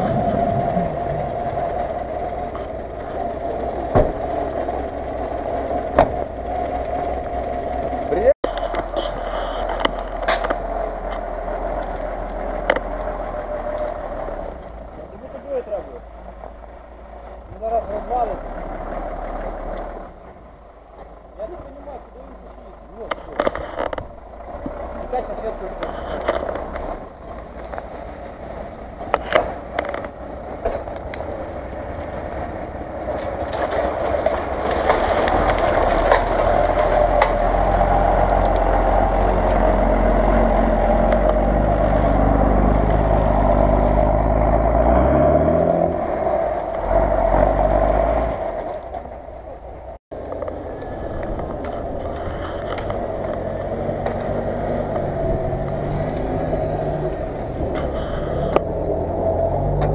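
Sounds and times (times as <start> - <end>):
sharp cracks: 0.0 - 14.8, 22.9 - 49.4
off-road vehicle engine revving: 0.0 - 59.9
steady vehicle engine running: 0.0 - 59.9.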